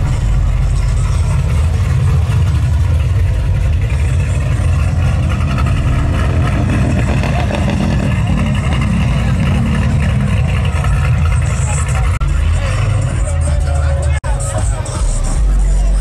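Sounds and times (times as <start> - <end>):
car engines idling: 0.0 - 16.0.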